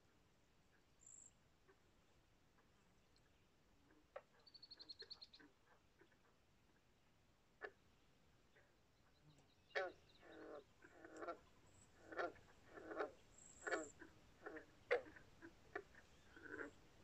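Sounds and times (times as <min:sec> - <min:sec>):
frogs croaking: 0:03.9 - 0:06.4, 0:07.6 - 0:07.8, 0:08.4 - 0:17.0.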